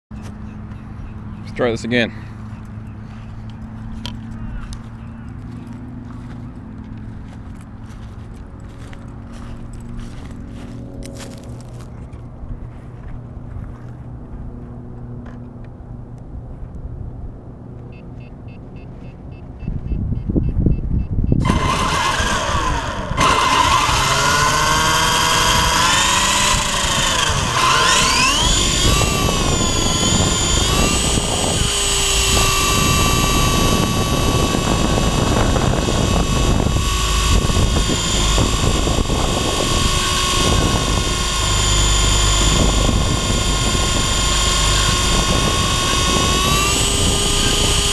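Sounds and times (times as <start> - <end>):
rotor-wash rumble: 21.4 - 47.9
toy helicopter motor whine: 21.4 - 47.9.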